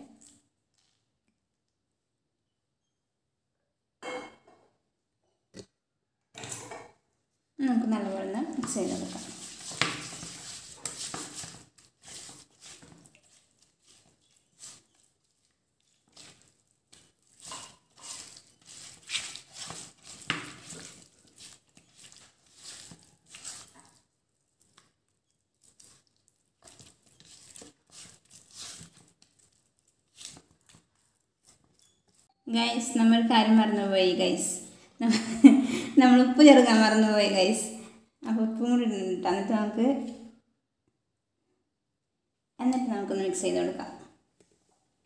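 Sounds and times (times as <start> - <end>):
food and utensils rustling: 7.9 - 33.2.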